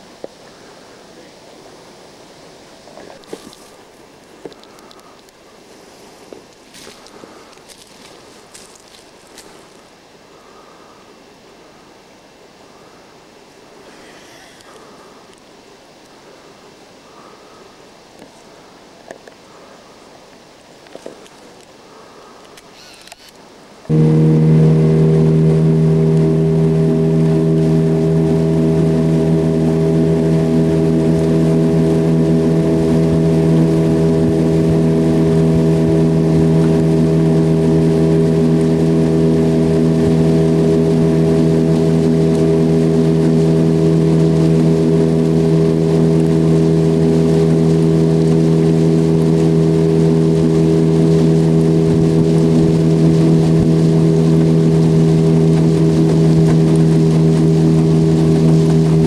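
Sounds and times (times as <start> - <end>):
outboard motor droning: 23.9 - 59.0.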